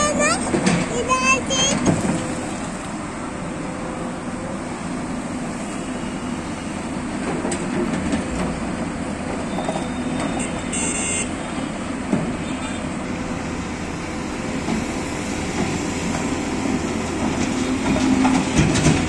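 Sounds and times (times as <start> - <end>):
excavator diesel engine running: 0.0 - 19.0
excavator digging soil: 14.6 - 19.0.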